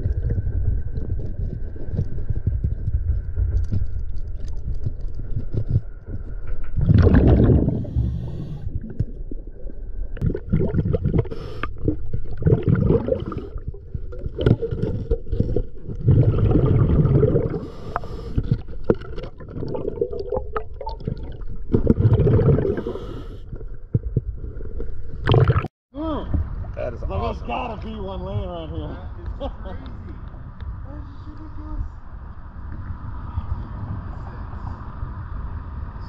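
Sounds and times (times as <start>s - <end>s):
bubbles gurgling underwater: 6.7s - 25.7s.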